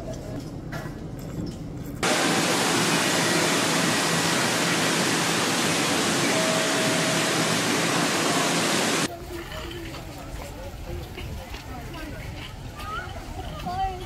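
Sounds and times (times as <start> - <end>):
running water rushing: 2.0 - 9.1.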